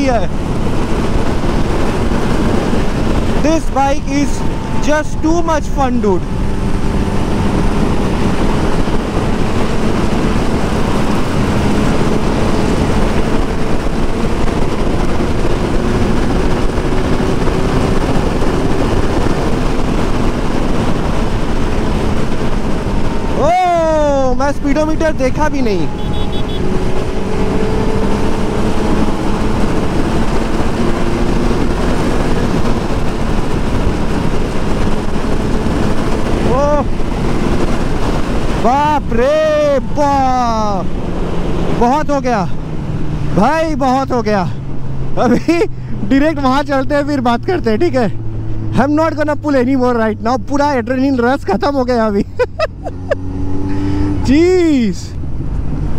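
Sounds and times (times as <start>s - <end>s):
motorcycle engine at high speed: 0.0s - 55.9s
wind rush on microphone: 0.0s - 55.9s
wind on microphone: 6.2s - 23.4s.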